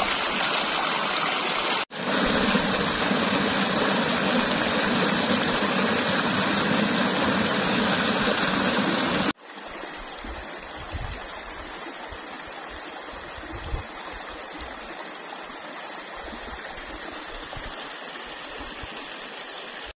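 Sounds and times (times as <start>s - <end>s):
distant cascade rushing: 0.0s - 10.8s
water rushing over rocks: 0.0s - 15.6s.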